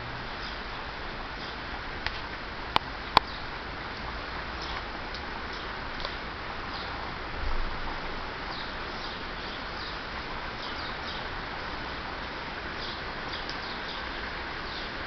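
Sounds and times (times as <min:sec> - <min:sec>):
rain hissing: 0:00.0 - 0:15.0
birds chirping: 0:00.3 - 0:01.6, 0:03.0 - 0:03.6, 0:04.6 - 0:04.9, 0:05.5 - 0:07.0, 0:08.4 - 0:11.7, 0:12.7 - 0:15.0.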